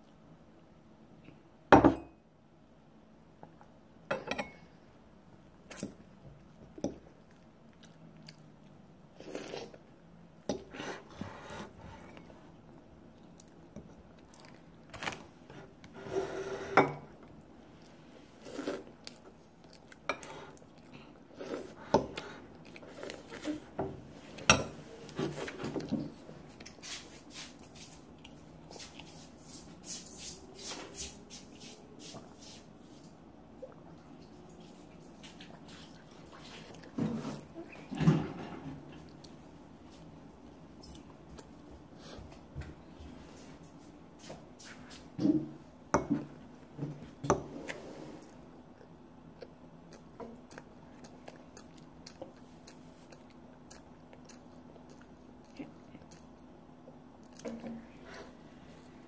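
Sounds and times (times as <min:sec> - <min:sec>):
child chewing: 0:05.6 - 0:09.9, 0:10.6 - 0:15.9, 0:17.2 - 0:26.8, 0:33.5 - 0:38.0, 0:38.9 - 0:42.4, 0:47.1 - 0:59.0.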